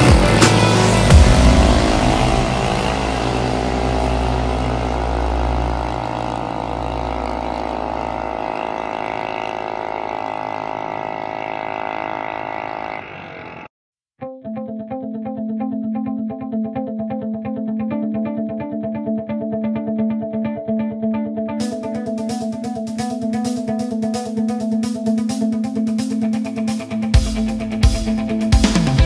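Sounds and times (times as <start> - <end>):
dragster engine at full throttle: 0.0 - 13.7.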